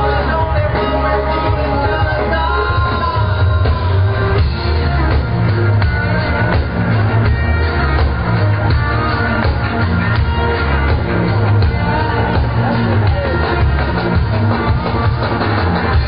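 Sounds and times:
person singing: 0.0 - 4.8
bass and drums: 0.0 - 16.0
crowd: 0.0 - 16.0.

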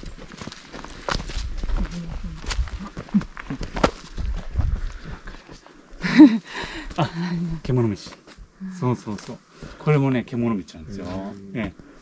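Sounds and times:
footsteps on dirt trail: 0.0 - 5.9.

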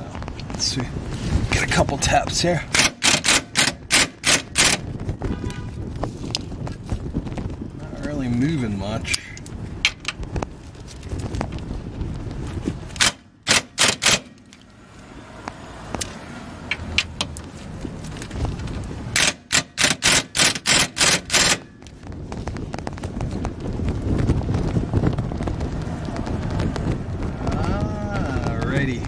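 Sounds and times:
impact wrench hammering: 2.7 - 4.9, 13.0 - 14.4, 19.2 - 21.7.

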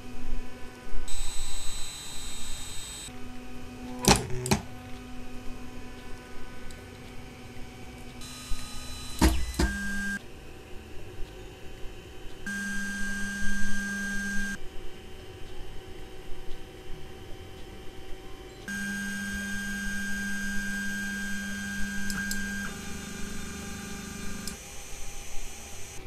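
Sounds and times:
cooling fans: 0.0 - 26.0
stepper motors whining: 1.1 - 10.2, 11.3 - 14.6, 18.2 - 26.0.

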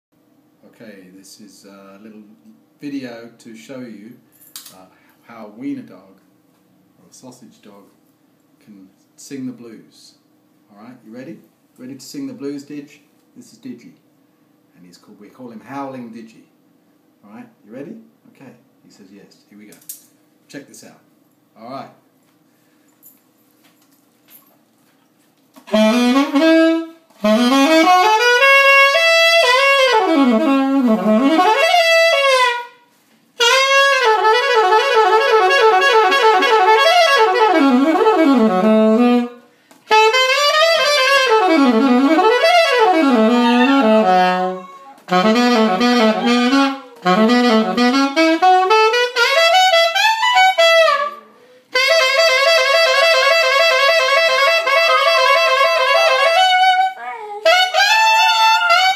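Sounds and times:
alto saxophone playing blues: 25.6 - 58.9.

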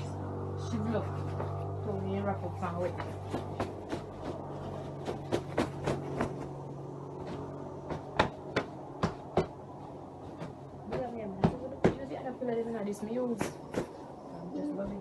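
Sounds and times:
sharp knocks: 5.0 - 6.5, 7.2 - 9.6.

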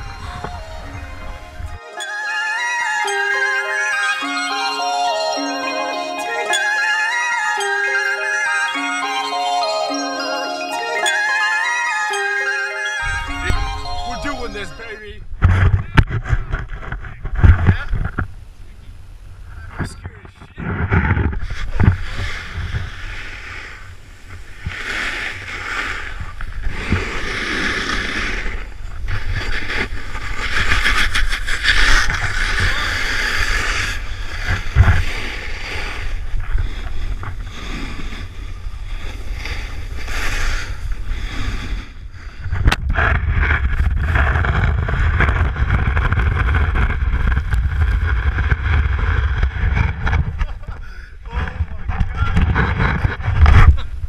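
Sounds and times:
wind buffeting microphone: 0.0 - 1.8, 13.0 - 54.0
snowboard scraping on snow: 21.4 - 50.6.

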